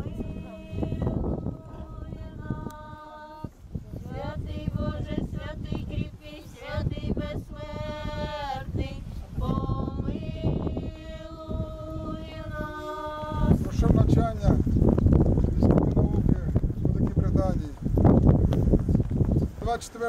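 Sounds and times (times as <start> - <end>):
women singing long held notes: 0.0 - 14.0.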